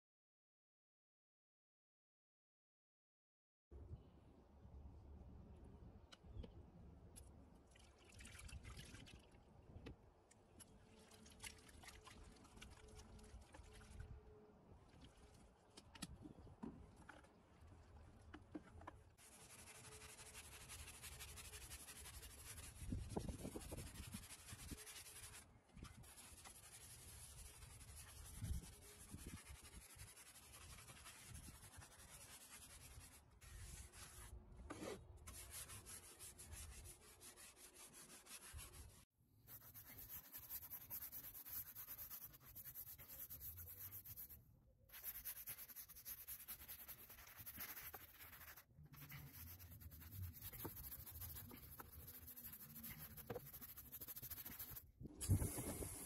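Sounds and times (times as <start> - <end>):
scrub brush rubbing: 19.2 - 25.4, 26.0 - 34.3, 39.5 - 54.8.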